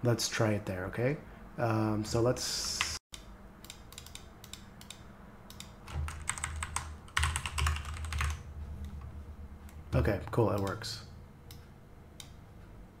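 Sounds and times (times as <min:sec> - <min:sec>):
typing on computer keyboard: 0:03.7 - 0:08.4.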